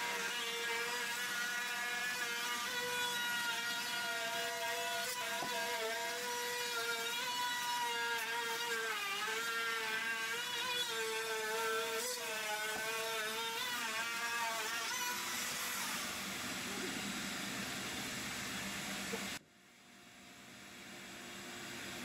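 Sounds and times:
power tool motor whining: 0.0 - 17.2.

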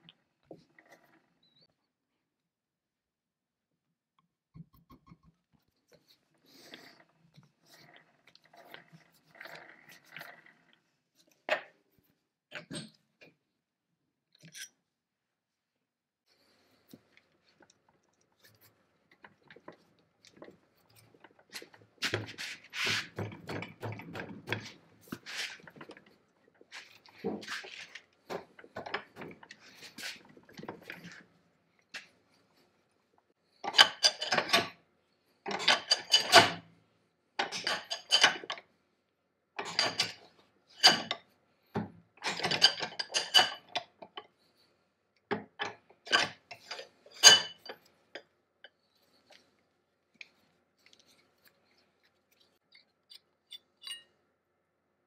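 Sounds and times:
brass threads grinding and squeaking: 14.4 - 14.8, 52.4 - 54.2.

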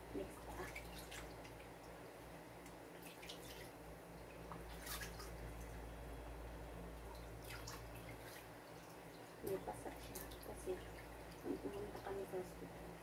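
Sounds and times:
steady low hum: 0.0 - 13.0
water splashing in plastic basin: 0.2 - 1.8, 3.0 - 5.7, 7.1 - 12.1.

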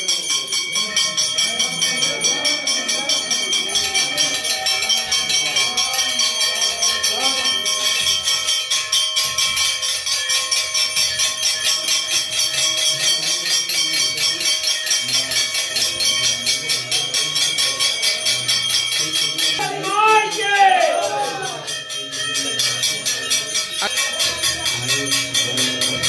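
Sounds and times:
brass hand bell ringing rapidly: 0.0 - 26.0.

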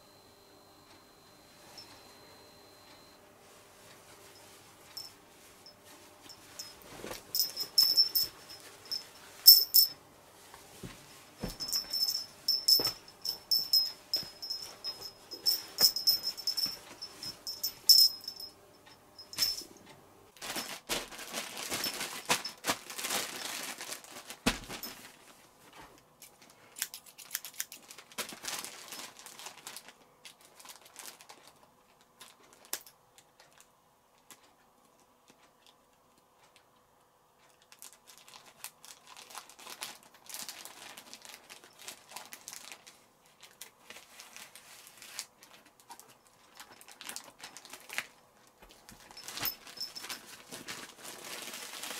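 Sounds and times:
plastic bag crinkling: 6.6 - 9.9, 20.4 - 25.3, 26.7 - 32.9, 37.6 - 51.9
cloth handling: 10.5 - 18.5, 20.4 - 25.2.

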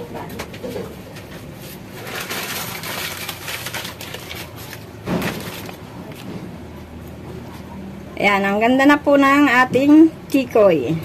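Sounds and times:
paper crinkling: 1.6 - 6.3.

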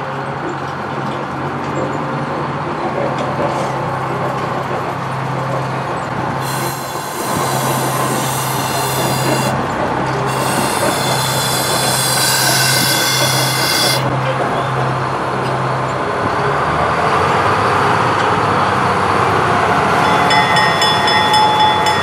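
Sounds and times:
diesel locomotive engine running: 0.0 - 22.0
steel wheels hissing on rails: 6.2 - 14.2, 19.9 - 22.0.

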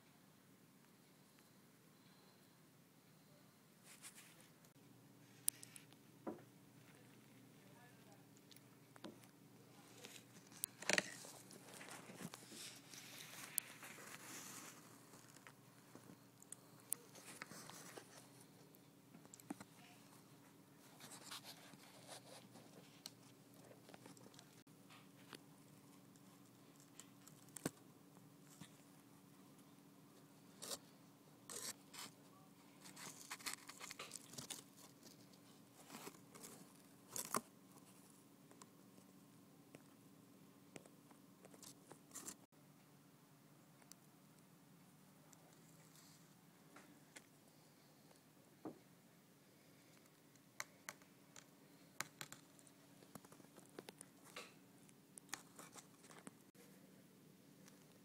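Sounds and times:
handling scrapes and rustles: 9.8 - 15.6.

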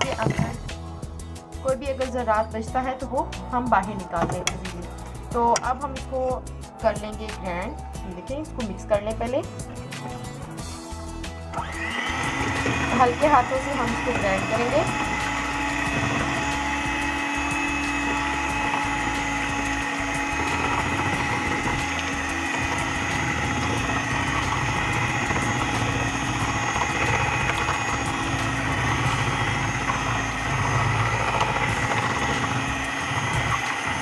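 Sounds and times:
electric hand mixer whine: 0.0 - 1.1, 10.6 - 34.0
beaters whisking batter: 11.6 - 34.0.

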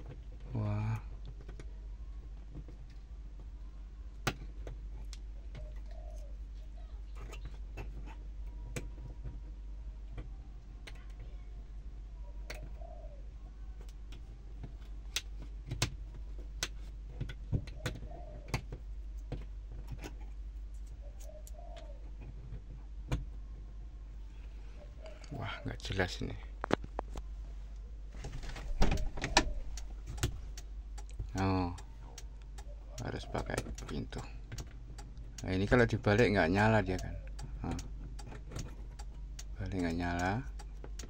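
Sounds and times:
dove cooing: 5.4 - 7.5, 12.2 - 13.8, 17.6 - 18.7, 20.9 - 22.5, 24.6 - 25.9, 28.5 - 30.4, 31.4 - 34.4, 36.5 - 37.6.

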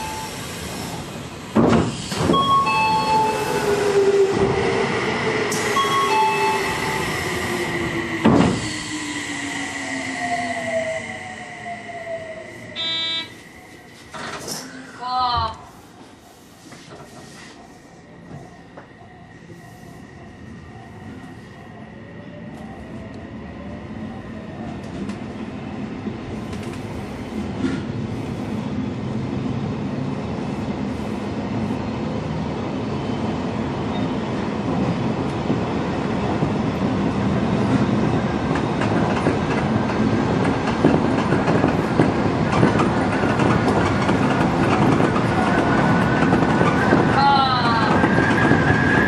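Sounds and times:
clickety-clack of rails: 0.8 - 3.6, 8.0 - 8.9, 16.6 - 17.6, 24.6 - 28.4, 33.5 - 49.0
wheels on rail running noise: 36.3 - 49.0.

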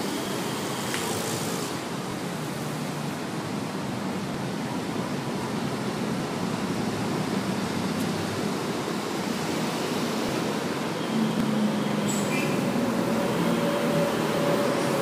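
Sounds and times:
road traffic roar: 0.0 - 15.0
motorbikes passing: 6.0 - 15.0.

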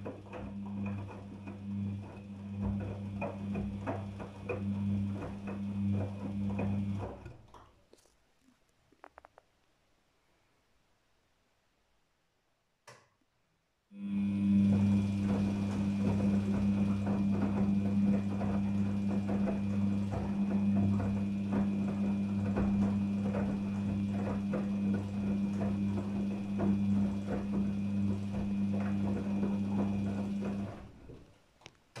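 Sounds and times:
wet laundry knocking in drum: 0.0 - 7.3, 14.6 - 31.2
washing machine drum humming: 0.0 - 7.5, 14.0 - 32.0.

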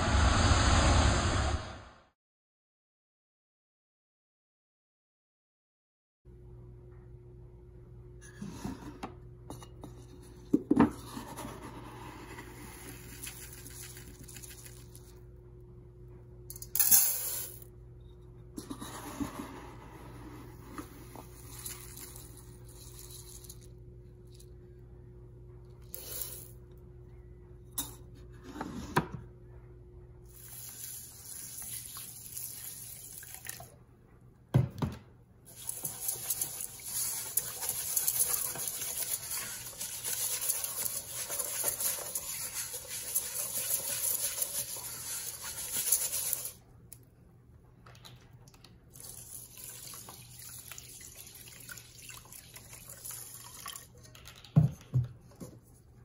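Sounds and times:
tap water running into pot: 35.5 - 46.5, 49.0 - 53.9.

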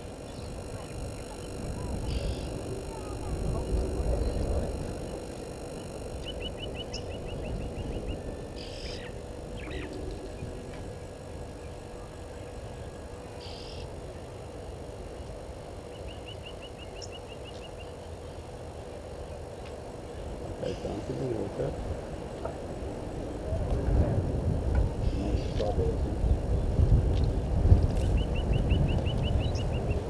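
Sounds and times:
wild birds calling: 0.0 - 14.0, 19.5 - 23.1, 24.9 - 25.8
steady outdoor hiss: 0.0 - 30.0.

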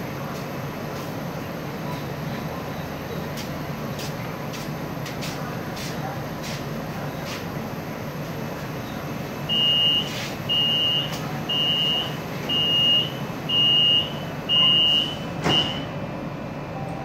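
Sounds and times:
train car low hum: 0.0 - 17.0
high door warning beeps: 9.5 - 16.0.

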